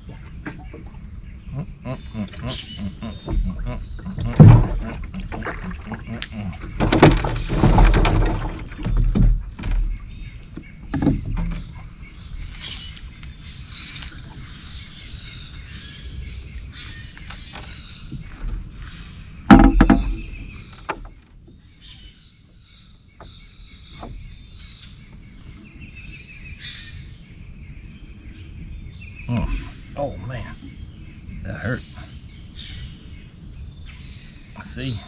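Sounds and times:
swamp birds chirping and calling: 0:00.0 - 0:35.0
loud thump: 0:19.5 - 0:20.2
small knocks: 0:19.5 - 0:21.2.

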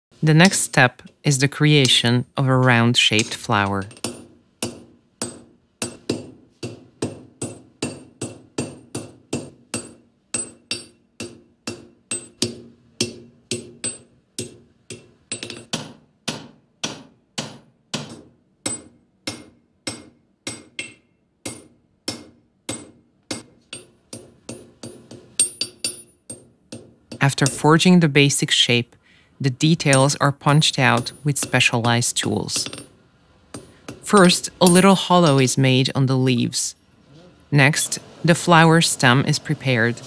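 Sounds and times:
hammer striking iron on anvil: 0:02.6 - 0:27.8, 0:30.8 - 0:35.6.

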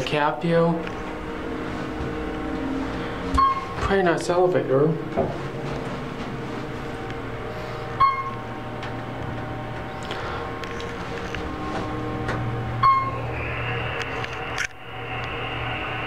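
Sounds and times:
elevator low hum: 0:00.0 - 0:16.0
elevator chime: 0:01.2 - 0:04.2, 0:07.6 - 0:14.0.

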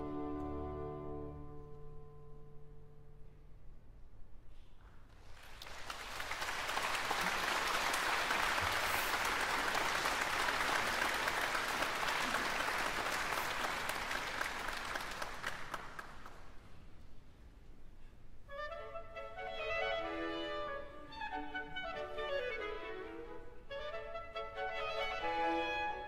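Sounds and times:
audience applauding: 0:05.2 - 0:16.7.

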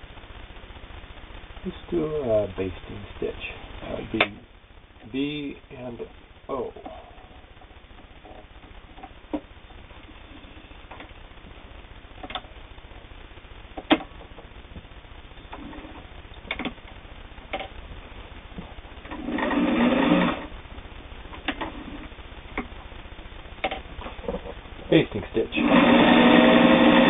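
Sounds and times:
sharp clicks and knocks: 0:12.2 - 0:12.5, 0:13.8 - 0:14.9, 0:15.5 - 0:17.8, 0:23.6 - 0:24.6
sewing machine running: 0:19.2 - 0:20.5, 0:25.6 - 0:27.0.

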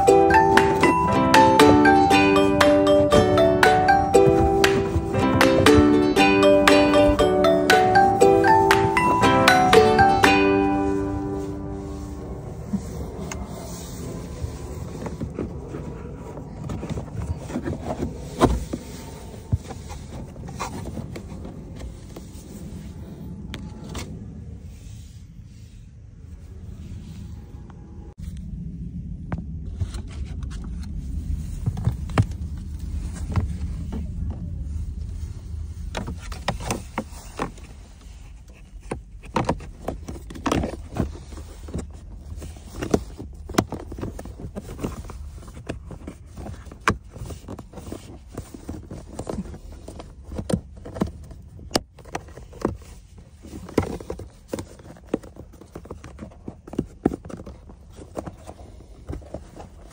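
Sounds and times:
low rumble: 0:11.0 - 0:38.8.

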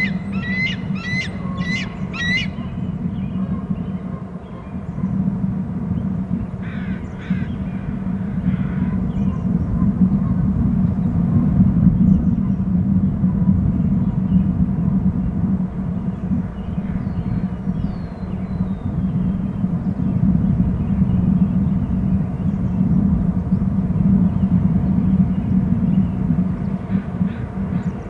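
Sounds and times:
high whistling calls: 0:00.0 - 0:02.7
harsh bird calls: 0:00.0 - 0:05.0, 0:06.6 - 0:09.6
low rumble: 0:00.0 - 0:28.0.

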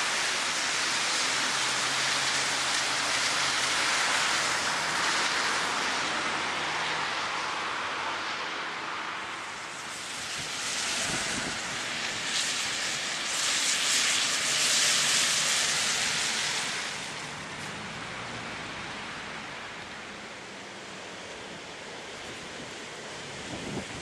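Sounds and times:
traffic noise: 0:00.0 - 0:24.0
wind: 0:00.0 - 0:24.0.

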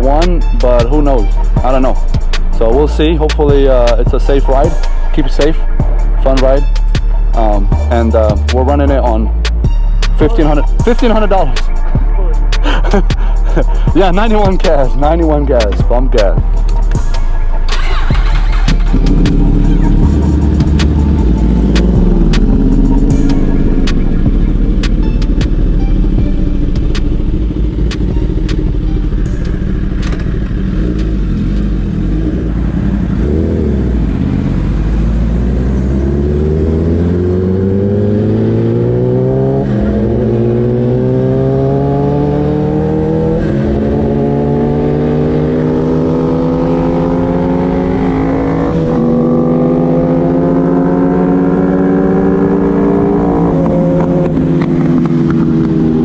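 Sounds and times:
motorcycle engine revving: 0:16.9 - 0:56.0.

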